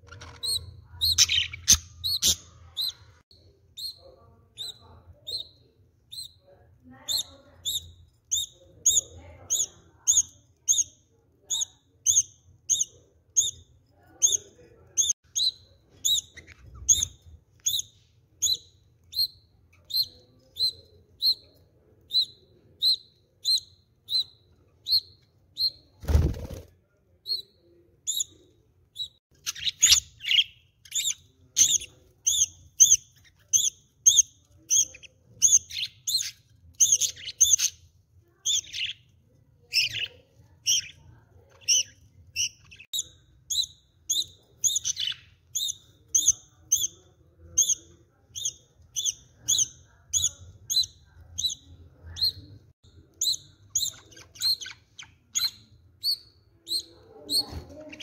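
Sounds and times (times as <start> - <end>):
budgerigars chirping: 0.1 - 3.1.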